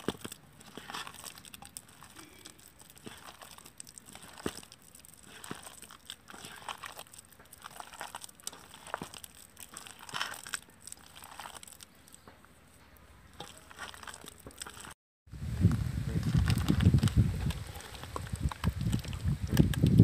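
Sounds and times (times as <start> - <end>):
hand mashing bananas: 0.0 - 15.0.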